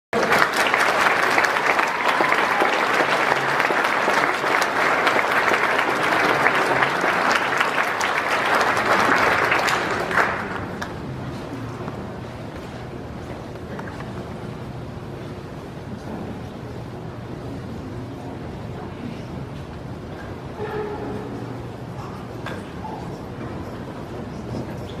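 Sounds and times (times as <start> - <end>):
audience applauding: 0.1 - 11.2.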